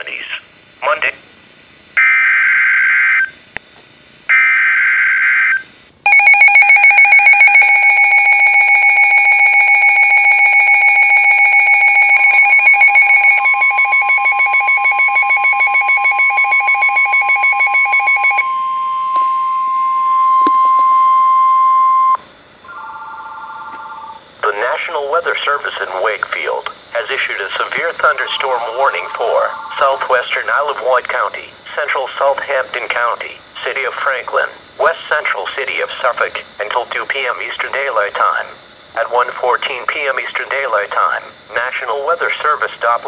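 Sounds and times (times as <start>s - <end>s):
rapid pulsing alarm beep: 4.3s - 25.8s, 26.4s - 31.8s
steady single-pitch alert tone: 6.1s - 24.4s, 26.9s - 30.9s
harsh digital data bursts: 26.5s - 30.9s.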